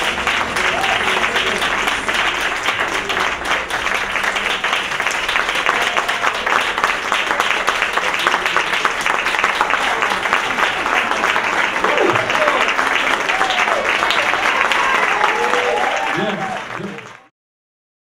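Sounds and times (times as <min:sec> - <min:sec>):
audience applauding: 0:00.0 - 0:17.3.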